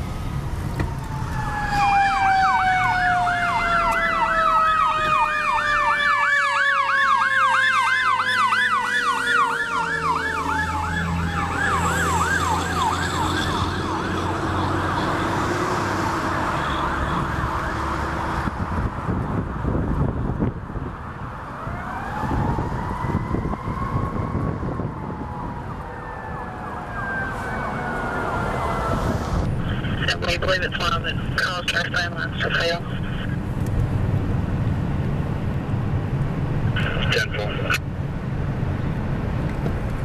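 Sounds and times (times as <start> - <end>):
mechanical siren wailing: 0.8 - 15.5, 16.2 - 18.2, 21.6 - 29.5
electronic siren yelping: 0.9 - 15.3, 16.2 - 18.2
low engine rumble: 28.8 - 40.0.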